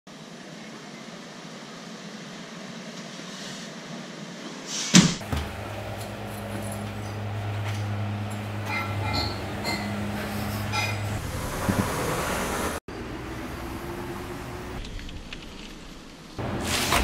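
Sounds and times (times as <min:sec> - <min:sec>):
sliding glass door rolling: 0:05.2 - 0:12.8.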